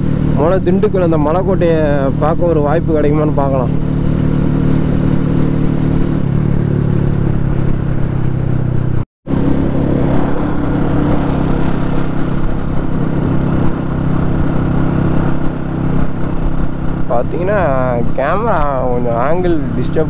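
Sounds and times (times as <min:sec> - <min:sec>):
motorcycle engine running: 0:00.0 - 0:20.0
wind rush on microphone: 0:07.7 - 0:19.2.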